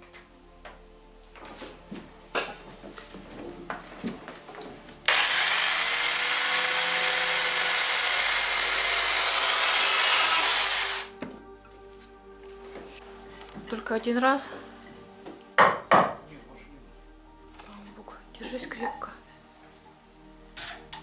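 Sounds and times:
electric chainsaw cutting wood: 5.1s - 11.1s.

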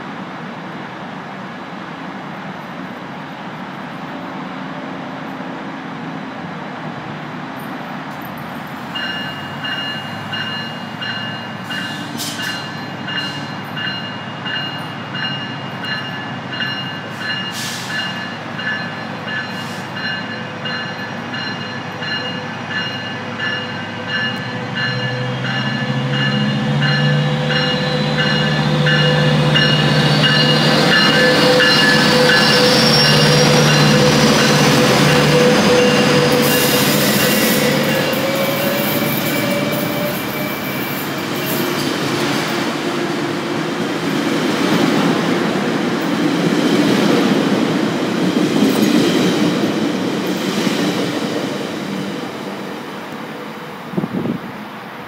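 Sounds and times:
bell ringing: 9.0s - 34.5s.

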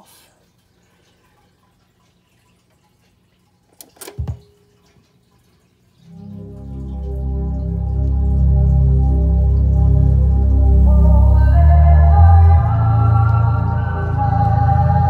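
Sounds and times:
record music: 6.0s - 15.0s.

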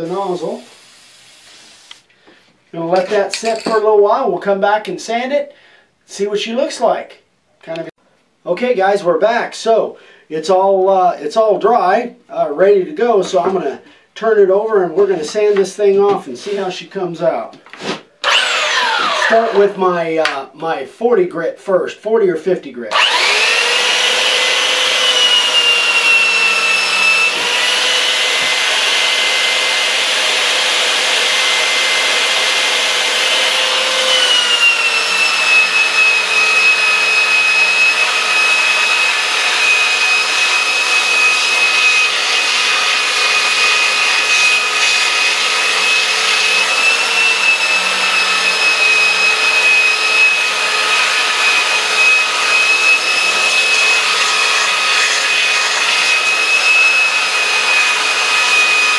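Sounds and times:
belt sander motor whine: 18.2s - 19.8s, 22.9s - 55.0s, 55.6s - 58.9s.

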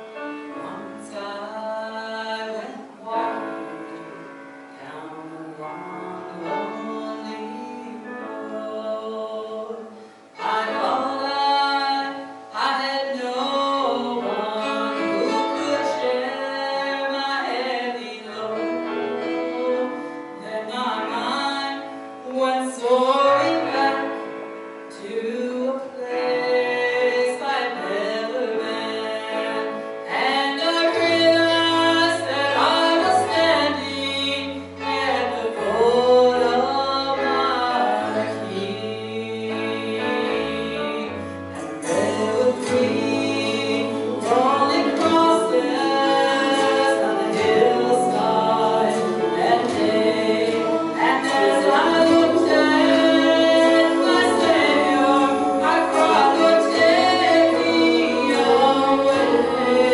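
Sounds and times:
gospel quartet singing in harmony: 0.0s - 59.9s
instrumental accompaniment with bass: 25.8s - 59.9s.

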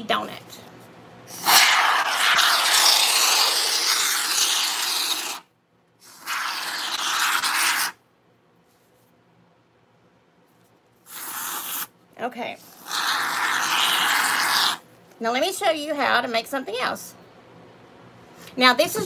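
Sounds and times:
spray foam can hissing: 1.3s - 5.4s, 6.0s - 8.0s, 11.1s - 11.9s.

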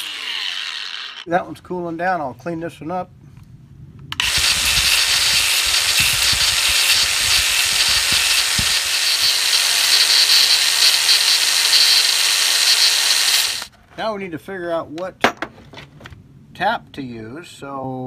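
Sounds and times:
angle grinder grinding metal: 0.0s - 1.3s, 4.2s - 13.7s.

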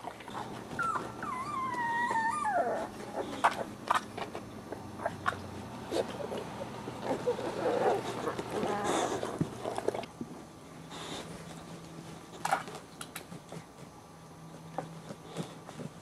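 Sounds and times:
puppies whining and grunting: 0.0s - 10.1s
clicks and scuffles of puppies moving: 0.0s - 16.0s.

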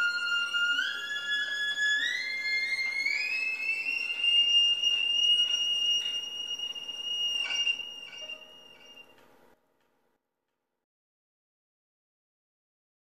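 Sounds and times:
solo violin: 0.0s - 9.2s.

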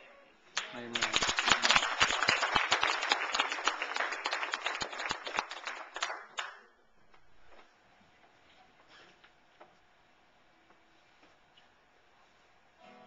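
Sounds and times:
crowd applauding: 0.6s - 6.7s.

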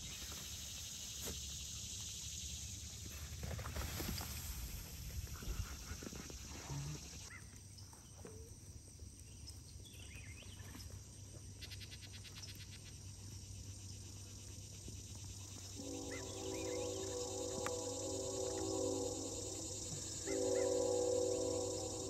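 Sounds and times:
ticking insect trill: 12.6s - 22.0s
faint short insect chirps: 15.3s - 22.0s.

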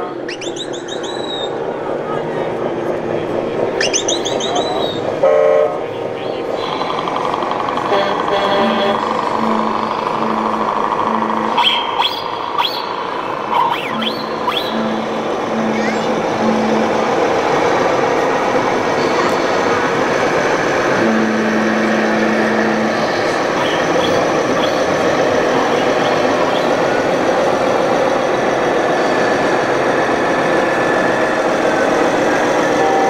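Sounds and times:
crowd hubbub in a hall: 0.0s - 33.0s
model truck diesel engine sounds: 0.0s - 33.0s
low steady tone: 7.7s - 18.2s, 20.9s - 25.0s.

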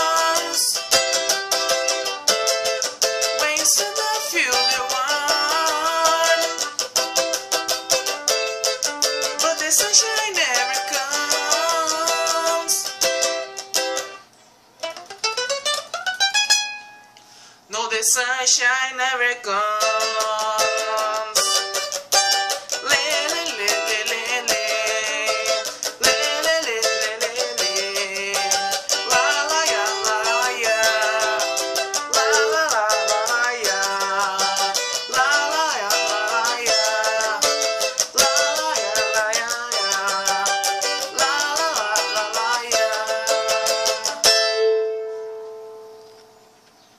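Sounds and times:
wordless vocal melody: 0.0s - 1.4s, 3.3s - 6.8s, 9.2s - 13.3s, 22.6s - 44.3s
cavaquinho strummed fast: 0.0s - 14.2s, 14.8s - 17.0s, 19.6s - 46.0s.

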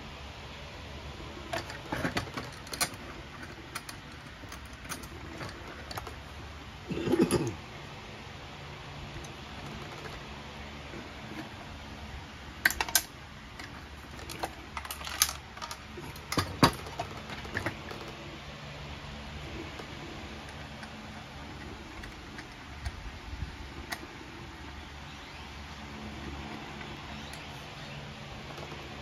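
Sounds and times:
clicks and knocks on metal: 12.6s - 18.2s.

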